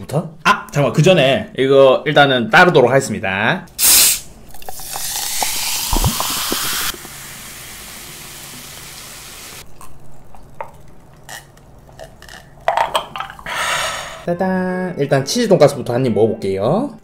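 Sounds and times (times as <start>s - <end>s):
cola fizzing: 4.4s - 11.3s
cola pouring into glass: 4.5s - 8.8s
soft gulps: 5.8s - 7.0s.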